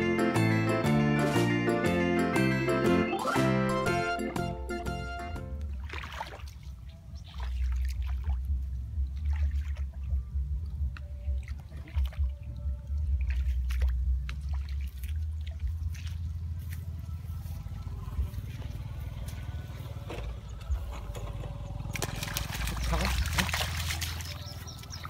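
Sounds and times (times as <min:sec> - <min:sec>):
small splashes: 0:05.6 - 0:10.2, 0:11.0 - 0:16.6, 0:21.7 - 0:25.0
feet wading through muddy water: 0:05.6 - 0:25.0
low rumble: 0:07.5 - 0:25.0.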